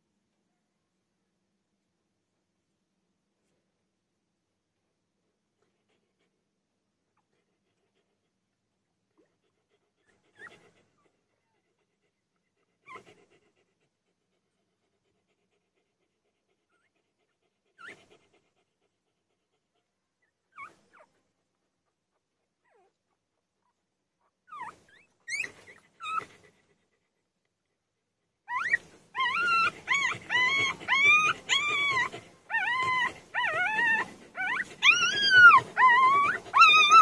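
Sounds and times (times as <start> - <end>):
puppy whimpering squeaky cries: 20.5 - 21.1, 24.5 - 26.3, 28.5 - 37.0.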